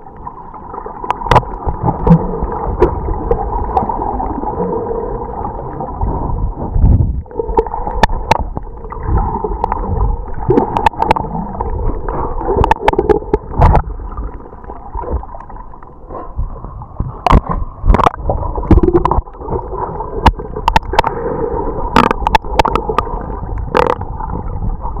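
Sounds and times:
muffled underwater water noise: 0:00.0 - 0:25.0
water gurgling and sloshing: 0:00.0 - 0:25.0
sharp clicks and knocks: 0:01.1 - 0:02.2, 0:10.5 - 0:11.3, 0:17.0 - 0:19.6, 0:21.9 - 0:24.0.

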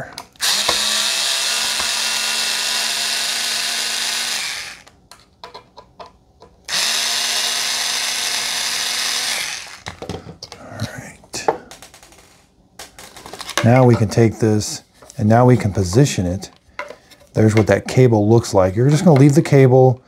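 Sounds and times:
cordless screwdriver running: 0:00.4 - 0:04.9, 0:06.7 - 0:09.9.

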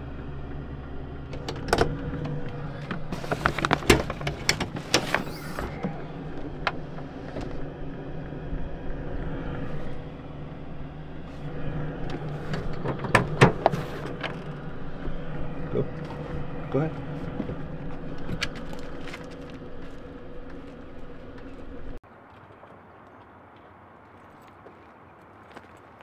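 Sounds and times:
steady low hum: 0:00.0 - 0:22.0
handling clicks and knocks: 0:01.3 - 0:07.6.

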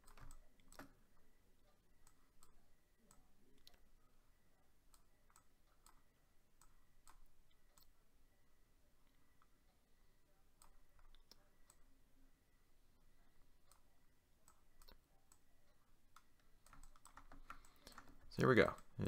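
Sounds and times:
computer mouse clicking: 0:00.0 - 0:01.1, 0:02.0 - 0:03.9, 0:04.8 - 0:08.0, 0:10.5 - 0:11.9, 0:13.6 - 0:15.5, 0:16.1 - 0:19.0.

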